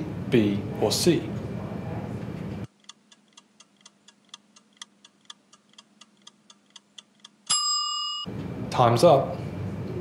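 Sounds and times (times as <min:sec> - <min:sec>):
clock ticking: 0:02.7 - 0:07.6
bell-like ding: 0:07.5 - 0:08.3.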